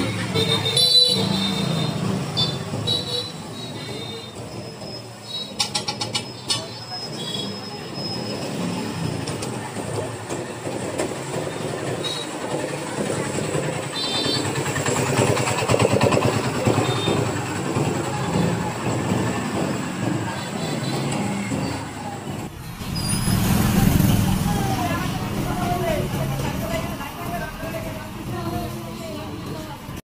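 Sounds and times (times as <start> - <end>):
vehicle rumble with rattling: 4.4 - 27.2.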